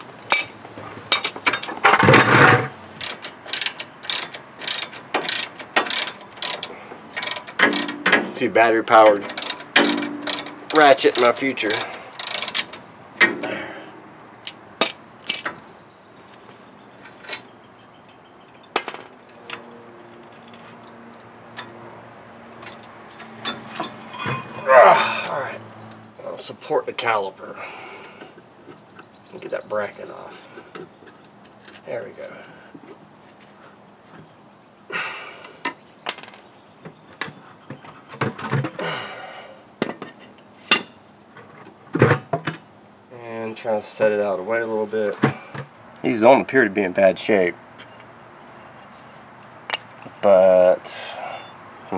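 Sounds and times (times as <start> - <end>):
metal tools clinking on brake caliper: 0.3 - 2.0, 3.0 - 13.6, 14.4 - 15.6, 18.1 - 21.8, 22.6 - 26.1, 47.8 - 48.1, 49.7 - 51.6
sharp metal knocks: 0.3 - 6.6, 7.2 - 8.4, 9.2 - 13.5, 14.4 - 15.6.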